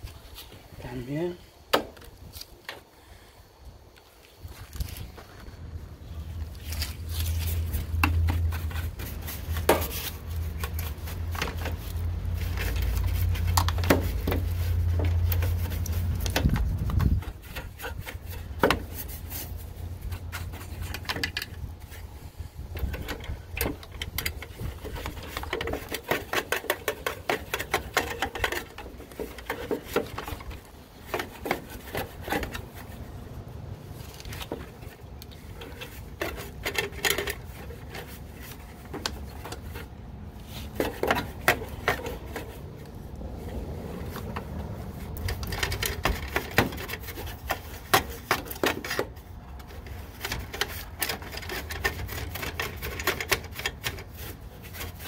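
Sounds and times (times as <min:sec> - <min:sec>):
tools clicking and knocking on metal: 0:22.8 - 0:32.7, 0:45.2 - 0:54.1.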